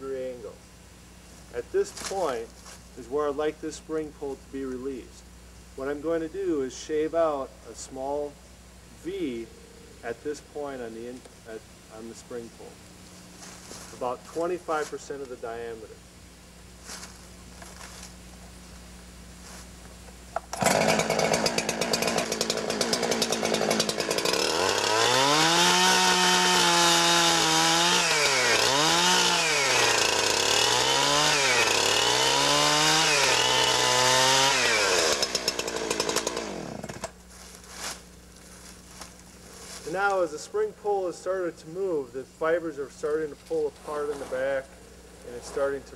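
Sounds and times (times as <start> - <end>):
chainsaw cutting wood: 20.4 - 38.0.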